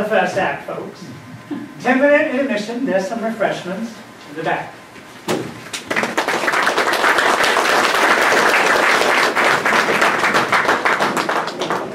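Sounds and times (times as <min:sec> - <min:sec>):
audience applauding: 0:05.7 - 0:11.9.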